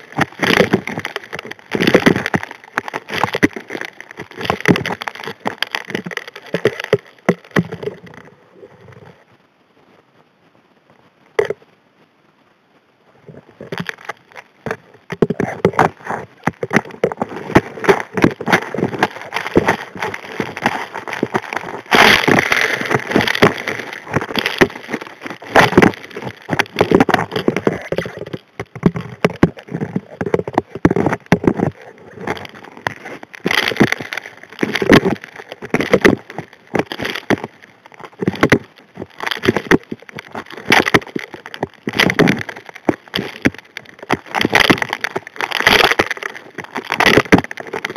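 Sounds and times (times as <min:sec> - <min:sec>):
rocks clattering against steel nozzle: 0:13.7 - 0:47.9.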